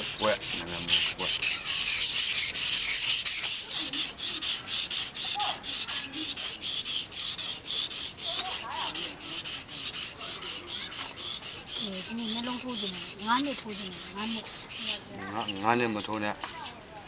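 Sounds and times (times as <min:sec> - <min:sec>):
hand sanding lacquer: 0:00.0 - 0:16.2.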